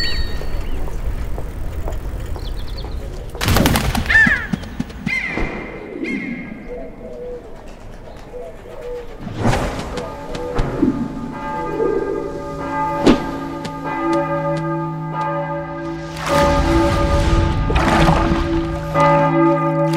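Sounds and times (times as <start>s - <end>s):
pigeons cooing: 3.9s - 13.9s
loud rushing sound: 15.8s - 19.1s.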